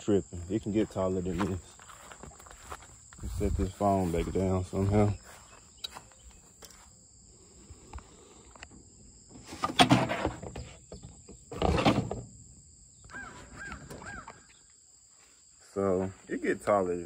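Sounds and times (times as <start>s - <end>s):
insects buzzing: 0.0s - 17.0s
bird calling: 13.0s - 14.8s.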